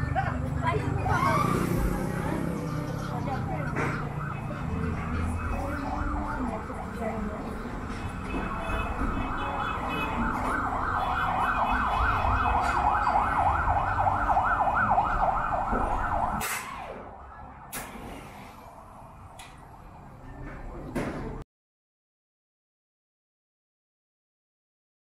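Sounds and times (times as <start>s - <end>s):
siren yelping: 1.0s - 2.5s, 3.4s - 7.0s, 9.3s - 17.6s.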